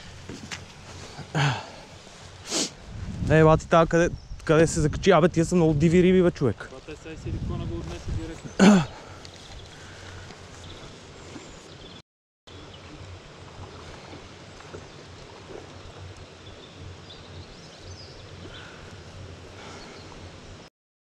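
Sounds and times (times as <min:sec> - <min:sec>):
low uneven rumble: 0:00.0 - 0:11.9, 0:12.5 - 0:20.7.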